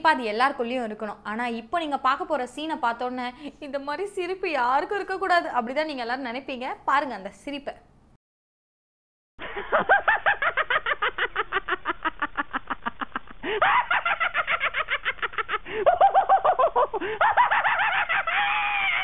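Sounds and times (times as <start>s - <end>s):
person cackling laugh: 9.4s - 19.0s.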